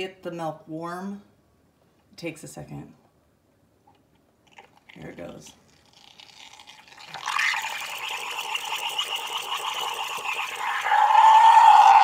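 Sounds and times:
loud steady squeal: 0:10.2 - 0:12.0.

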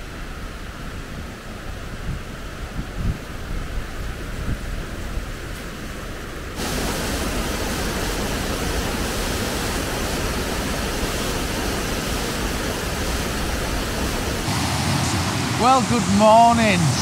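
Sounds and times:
waterfall rushing: 0:06.6 - 0:17.0
low rumble: 0:14.4 - 0:17.0.

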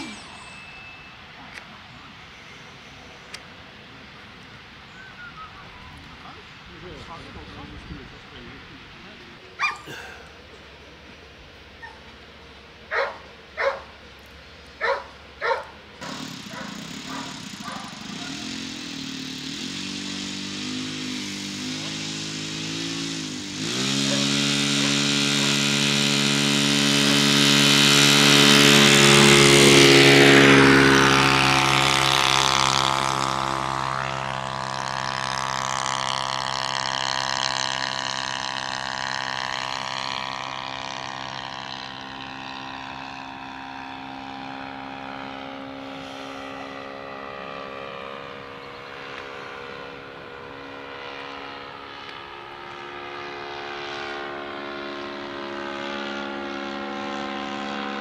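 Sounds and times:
model plane engine: 0:00.0 - 0:58.0
dog barking: 0:09.6 - 0:09.9, 0:12.9 - 0:13.9, 0:14.8 - 0:15.7, 0:16.5 - 0:18.5.

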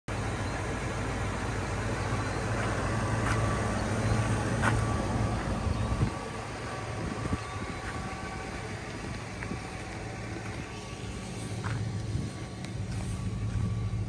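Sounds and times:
pickup engine idling: 0:00.1 - 0:14.0.

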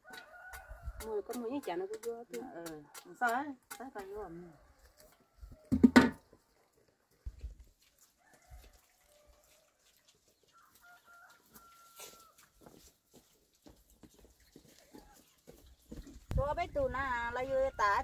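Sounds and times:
rooster crowing: 0:10.5 - 0:12.4.

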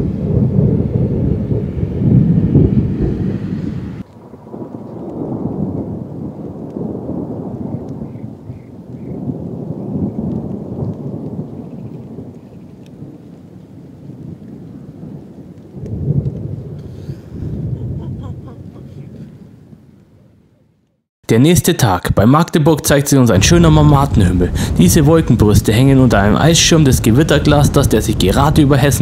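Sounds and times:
thunder rumbling: 0:00.0 - 0:20.7, 0:22.8 - 0:29.0
light rain falling: 0:04.0 - 0:20.9, 0:23.4 - 0:29.0.

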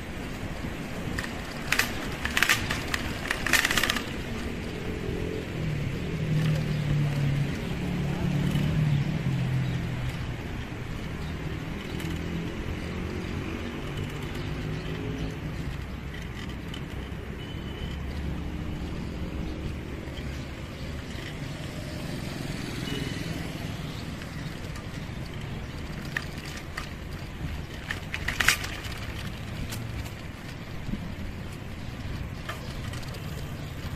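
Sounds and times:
motor traffic hum: 0:00.0 - 0:33.9
sharp clicks: 0:01.0 - 0:04.8.

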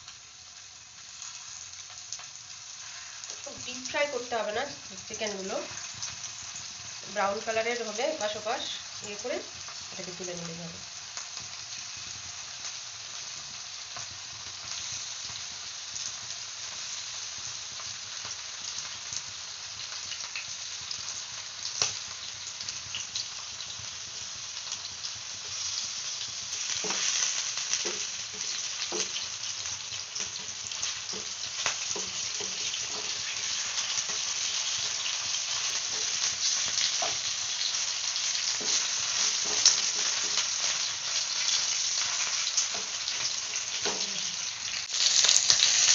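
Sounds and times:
chicken sizzling in oil: 0:00.0 - 0:45.9.

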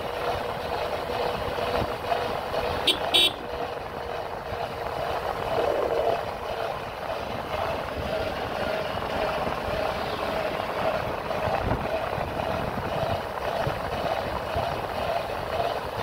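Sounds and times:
motorcycle engine running: 0:00.0 - 0:16.0
wind buffeting microphone: 0:03.8 - 0:16.0.

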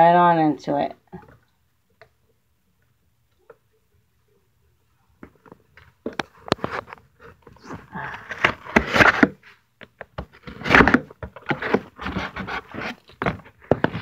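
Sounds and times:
tape and cardboard tearing: 0:07.6 - 0:09.4, 0:10.2 - 0:14.0.

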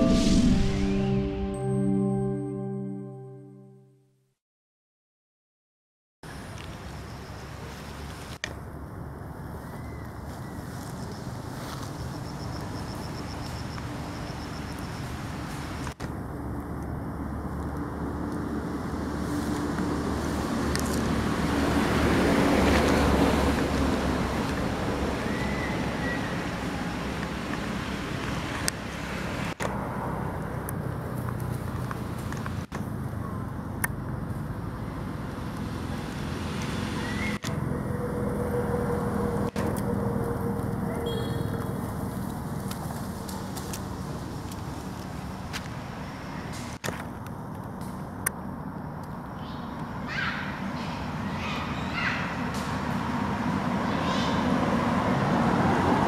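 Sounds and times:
outdoor background noise: 0:06.2 - 0:56.0.

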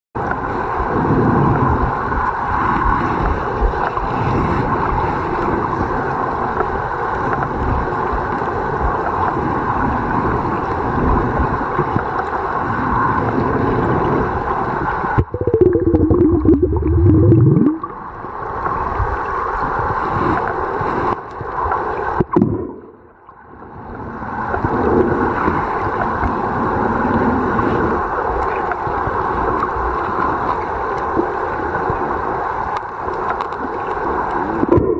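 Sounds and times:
muffled underwater rushing: 0:00.2 - 0:34.9
wavering tone: 0:15.2 - 0:17.8.

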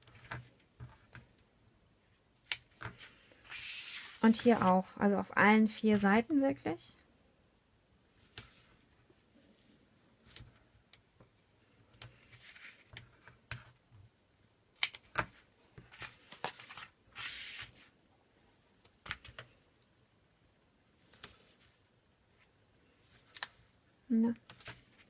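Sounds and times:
paper rustling: 0:02.7 - 0:04.9, 0:15.1 - 0:17.9.

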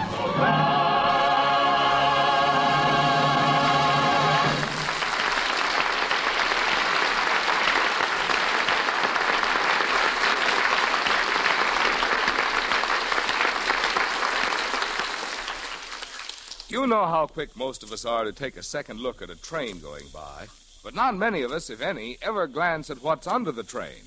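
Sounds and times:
audience applauding: 0:04.4 - 0:16.7.

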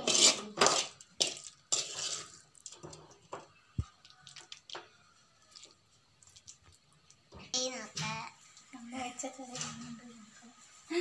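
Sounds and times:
metal spoon scraping a pan: 0:00.0 - 0:03.3.

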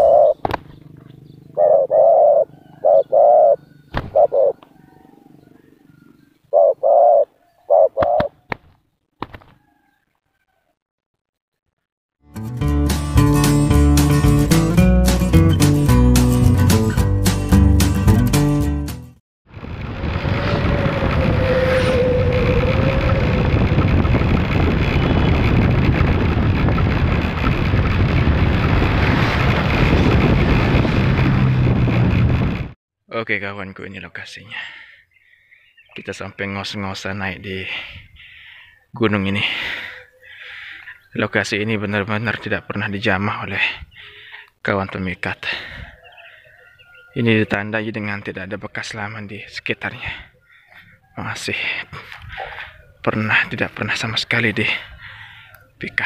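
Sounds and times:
doves cooing: 0:00.0 - 0:08.6, 0:45.6 - 0:47.4, 0:50.0 - 0:53.4
vehicle engine and road noise: 0:00.1 - 0:06.5, 0:19.5 - 0:32.8
wind buffeting microphone: 0:19.5 - 0:32.8.

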